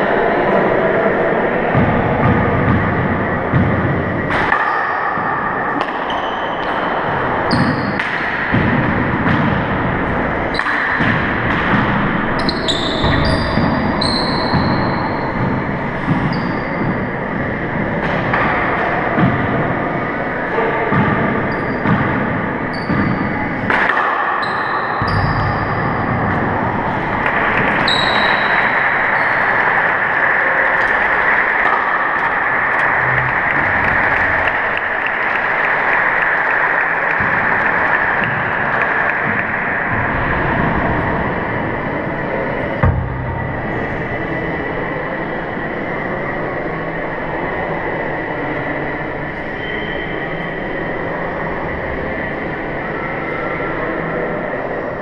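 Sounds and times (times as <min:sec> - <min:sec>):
sneakers squeaking on hardwood: 0:12.4 - 0:17.2, 0:22.7 - 0:23.4.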